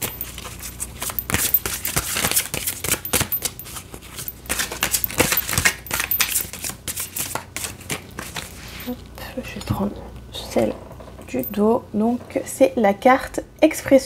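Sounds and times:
cards being shuffled: 0.4 - 8.9.

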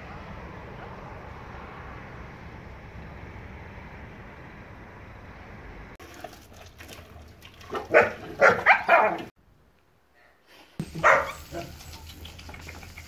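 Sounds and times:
dogs barking: 7.7 - 9.3, 10.8 - 11.8.

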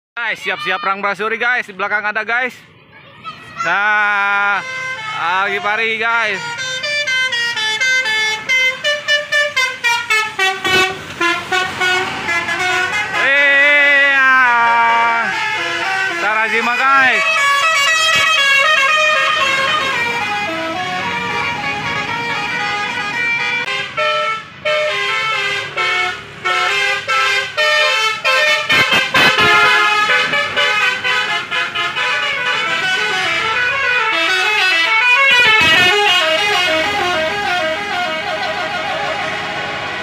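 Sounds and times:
bus melodic horns playing tunes: 4.2 - 40.0.

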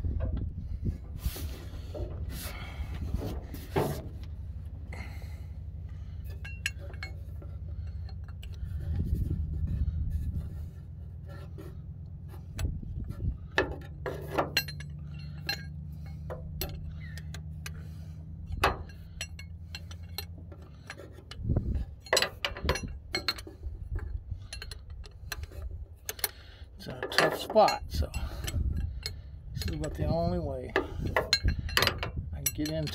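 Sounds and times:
steady low hum: 0.0 - 32.9
wrench clinking against bolt: 5.0 - 9.0, 12.5 - 32.9.

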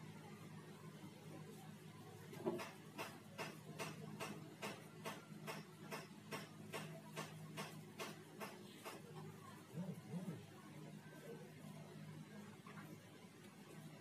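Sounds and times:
faint low hum: 8.7 - 14.0.

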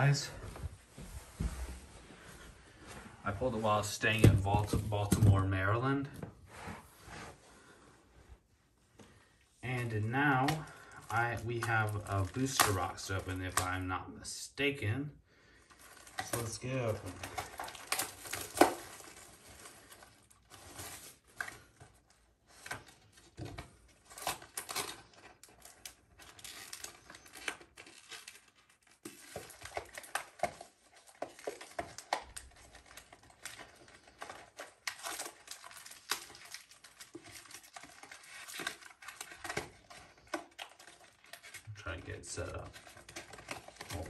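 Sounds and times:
plastic wrap crinkling and tearing: 9.7 - 13.8, 15.6 - 44.0.

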